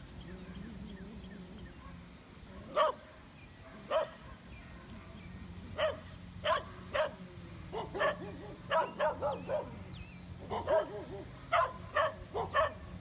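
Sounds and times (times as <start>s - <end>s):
dog barking: 2.6s - 4.9s, 5.8s - 9.8s, 10.4s - 12.9s.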